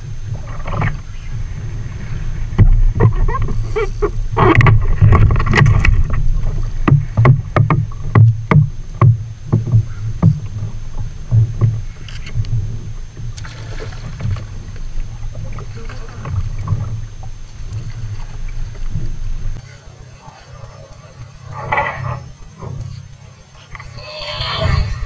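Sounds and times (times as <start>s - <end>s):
gear bumping against hull: 0.0s - 19.6s
water slapping hull: 0.0s - 25.0s
knocks and thumps on plastic kayak: 2.4s - 19.6s.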